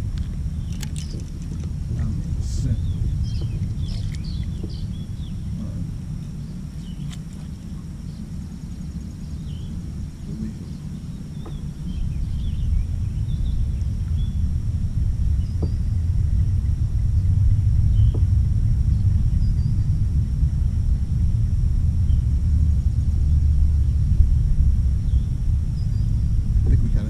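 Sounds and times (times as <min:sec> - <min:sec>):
wind buffeting microphone: 0:00.0 - 0:27.0
small clicks: 0:00.1 - 0:01.7
faint bird chirps: 0:02.4 - 0:14.4.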